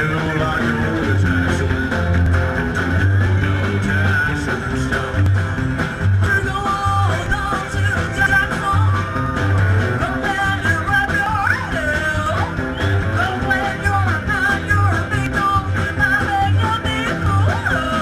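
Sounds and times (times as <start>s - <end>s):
electric guitar: 0.0s - 18.0s
steady drums: 0.0s - 18.0s
upright bass line: 0.0s - 18.0s
woman singing: 13.2s - 18.0s.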